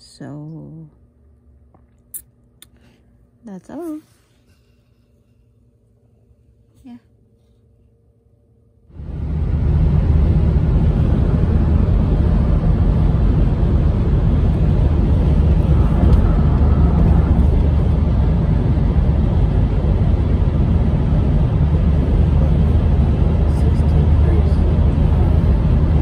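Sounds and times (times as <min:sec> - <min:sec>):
car road noise rumble: 0:08.9 - 0:26.0.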